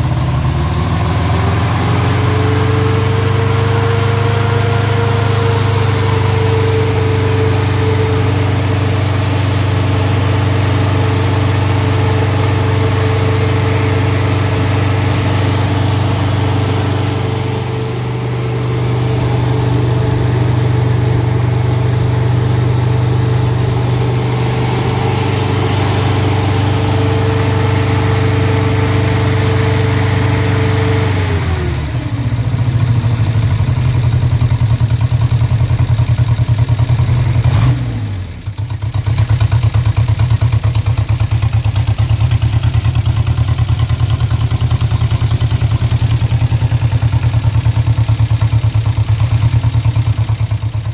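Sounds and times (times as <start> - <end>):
car engine idling: 0.0 - 50.9.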